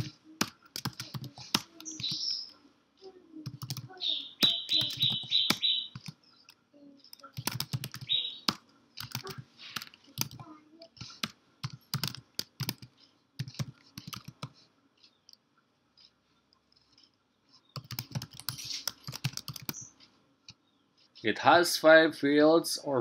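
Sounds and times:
computer keyboard typing: 0:00.0 - 0:02.2, 0:03.4 - 0:06.2, 0:07.1 - 0:10.4, 0:11.0 - 0:14.6, 0:17.8 - 0:19.9.

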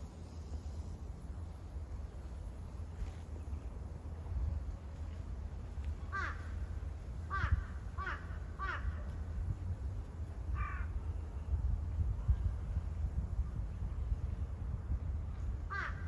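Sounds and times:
wind rumble on microphone: 0:00.0 - 0:16.0
crow cawing: 0:06.1 - 0:06.5, 0:07.3 - 0:09.0, 0:10.6 - 0:10.9, 0:15.7 - 0:16.0.

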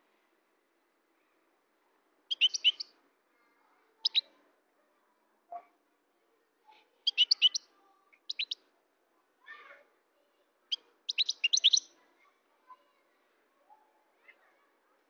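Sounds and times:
bird twittering song: 0:02.3 - 0:02.9, 0:04.0 - 0:04.3, 0:07.0 - 0:08.6, 0:10.7 - 0:11.9
soft lower bird call: 0:02.3 - 0:02.9, 0:04.0 - 0:04.3, 0:07.1 - 0:08.6, 0:10.7 - 0:12.0.

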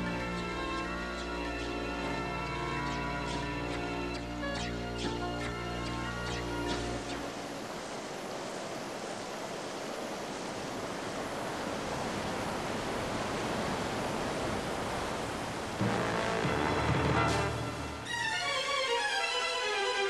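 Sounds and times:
music: 0:00.0 - 0:07.1, 0:15.8 - 0:20.0
surging water: 0:00.0 - 0:20.0
wind: 0:00.0 - 0:20.0
heavy rain: 0:05.6 - 0:20.0.

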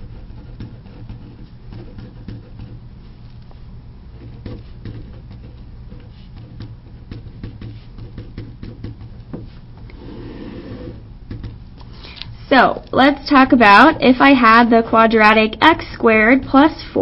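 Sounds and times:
pen scratching on paper: 0:00.0 - 0:03.2, 0:04.1 - 0:11.0
steady low hum: 0:00.0 - 0:17.0.

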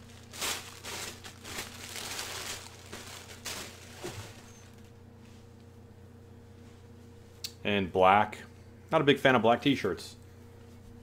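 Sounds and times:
crepe paper rustling: 0:00.0 - 0:04.9.

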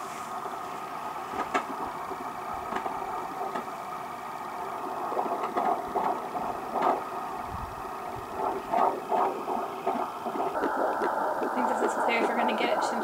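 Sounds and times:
static hiss from speaker: 0:00.0 - 0:13.0
scratchy clicks: 0:08.3 - 0:13.0.

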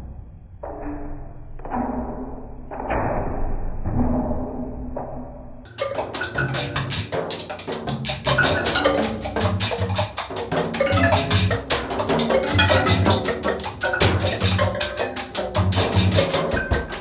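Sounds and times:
drum or wood-block hits: 0:05.7 - 0:17.0
repeated bass notes: 0:05.7 - 0:17.0.

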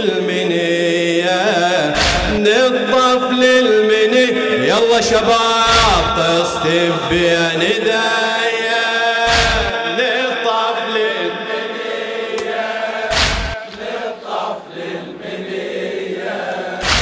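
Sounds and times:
men chanting in unison: 0:00.0 - 0:17.0
deep thump: 0:02.0 - 0:02.4, 0:09.3 - 0:09.7, 0:13.1 - 0:13.6.

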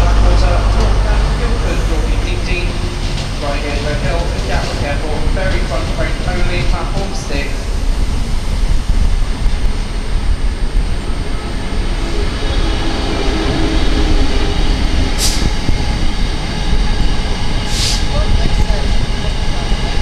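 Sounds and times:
train rumbling past: 0:00.0 - 0:20.0
short air hisses: 0:15.2 - 0:15.5, 0:17.7 - 0:18.1.

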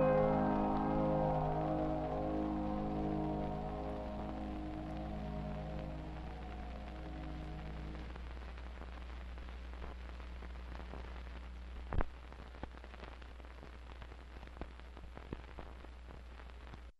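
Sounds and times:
held music chord: 0:00.0 - 0:08.1
crackles and pops: 0:00.0 - 0:16.9
film soundtrack hum and hiss: 0:00.0 - 0:16.9.

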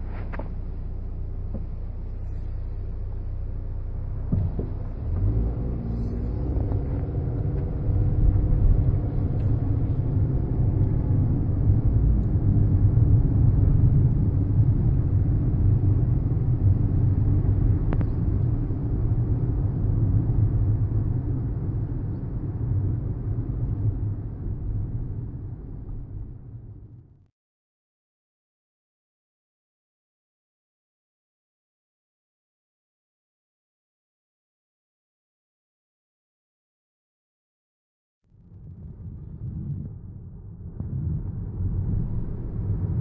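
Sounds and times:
car road noise rumble: 0:00.0 - 0:27.3, 0:38.3 - 0:43.0.

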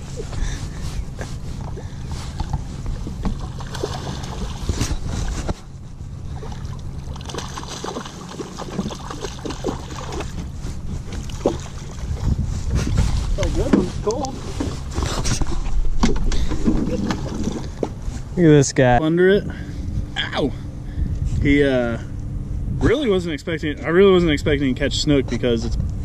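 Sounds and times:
wind rumble on microphone: 0:00.0 - 0:07.0, 0:08.6 - 0:18.4, 0:19.4 - 0:26.0
water splashing around boat: 0:00.0 - 0:18.3.

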